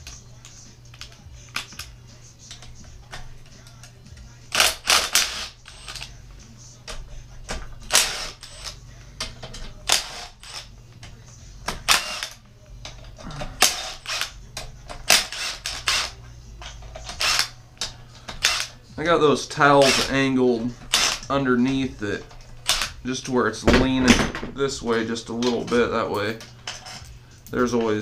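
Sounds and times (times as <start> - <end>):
impact driver rattling bursts: 4.5 - 6.1, 7.6 - 10.7, 11.8 - 12.4, 13.6 - 14.3, 14.9 - 16.2, 16.8 - 17.6, 18.4 - 18.7, 19.6 - 21.4, 22.5 - 23.0.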